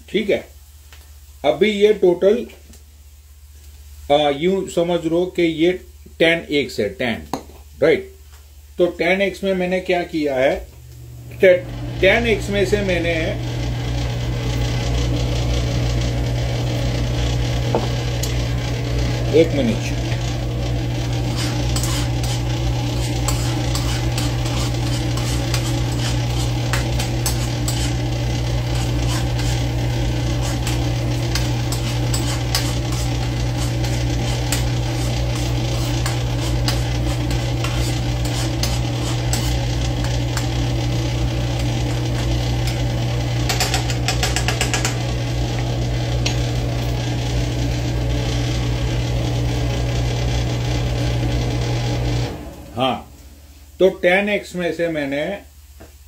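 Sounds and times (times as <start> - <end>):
low hum: 10.7 - 53.8
onions sizzling in oil: 16.6 - 43.9
rapid scraping: 17.9 - 45.3.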